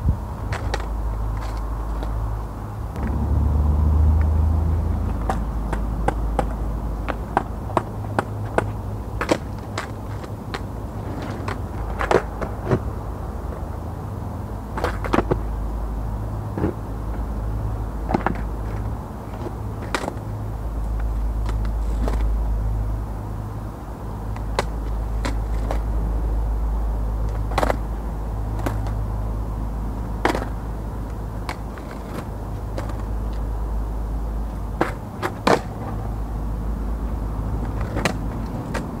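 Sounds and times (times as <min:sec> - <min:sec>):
skateboard wheels rolling on asphalt: 0:00.0 - 0:39.0
skateboard clacking on ground: 0:00.5 - 0:02.2, 0:05.1 - 0:12.9, 0:14.7 - 0:15.5, 0:18.1 - 0:20.2, 0:20.9 - 0:22.3, 0:24.3 - 0:25.9, 0:27.3 - 0:27.9, 0:30.2 - 0:33.5, 0:34.7 - 0:36.1, 0:37.6 - 0:39.0.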